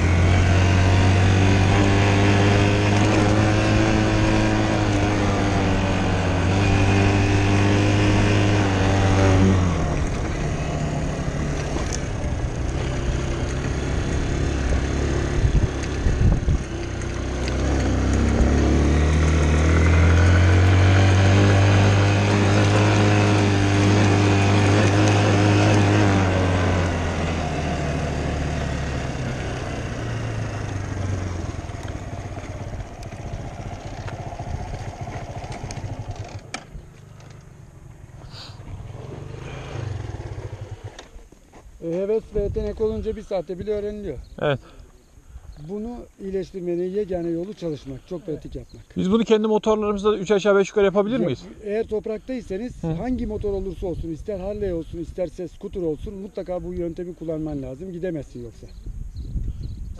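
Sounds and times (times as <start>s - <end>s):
dirt bike engine revving: 0.0s - 41.2s.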